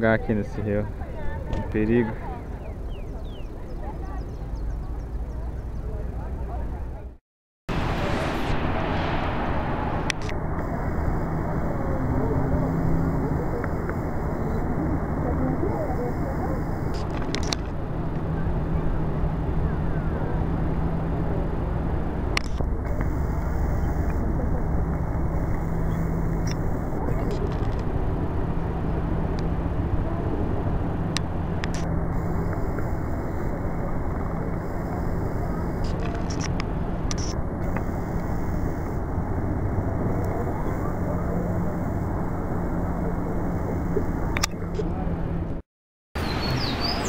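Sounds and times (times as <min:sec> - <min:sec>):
faint low hum: 0:07.8 - 0:45.4.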